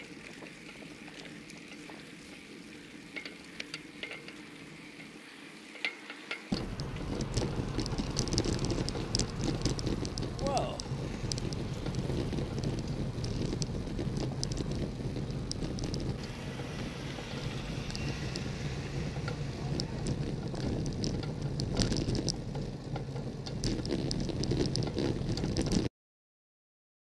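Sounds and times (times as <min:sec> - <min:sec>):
road rumble: 0:06.5 - 0:25.9
wind buffeting microphone: 0:06.5 - 0:25.9.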